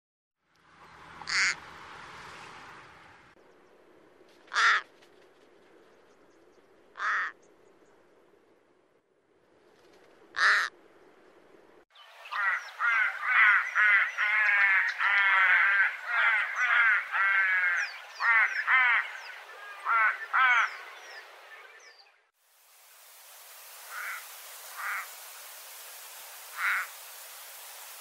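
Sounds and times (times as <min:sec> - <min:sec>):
crow calling: 0:01.2 - 0:01.6, 0:04.5 - 0:04.9, 0:06.9 - 0:07.4, 0:10.3 - 0:10.7, 0:12.3 - 0:21.1, 0:23.9 - 0:25.1, 0:26.5 - 0:27.0.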